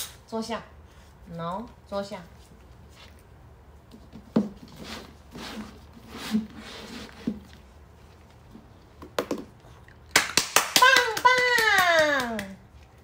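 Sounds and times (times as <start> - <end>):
cups scraping across floor: 4.1 - 7.9.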